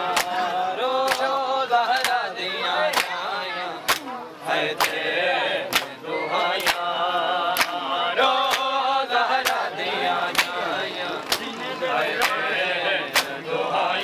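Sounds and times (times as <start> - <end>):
men chanting a lament: 0.0 - 14.0
hands slapping bare chests: 0.2 - 0.4, 1.0 - 1.3, 2.0 - 2.2, 2.9 - 3.2, 3.9 - 4.1, 5.7 - 5.9, 7.6 - 7.8, 8.5 - 8.7, 10.3 - 10.6, 13.1 - 13.4.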